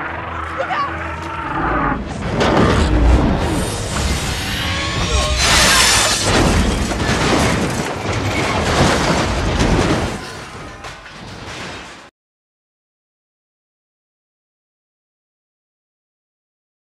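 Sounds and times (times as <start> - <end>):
heavy booms and crashes: 2.0 - 11.9.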